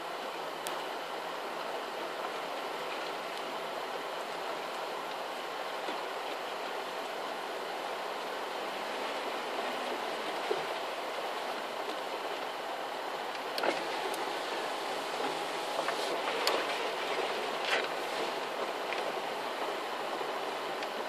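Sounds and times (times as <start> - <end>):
vehicle rumbling over rough ground: 5.6 - 21.0.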